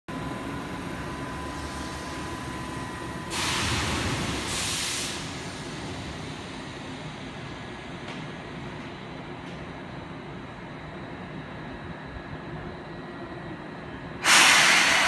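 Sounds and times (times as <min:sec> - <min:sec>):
train high whine and low hum: 0:00.1 - 0:15.0
air brakes hissing: 0:03.3 - 0:05.7, 0:14.2 - 0:15.0.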